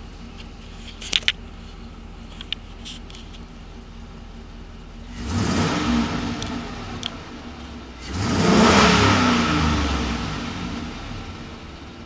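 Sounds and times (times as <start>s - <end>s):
truck engine revving: 5.0s - 12.0s.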